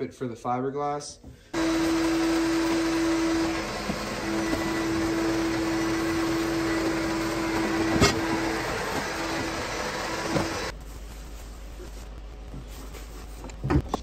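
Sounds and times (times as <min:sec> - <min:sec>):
vacuum cleaner running: 0:01.6 - 0:10.7.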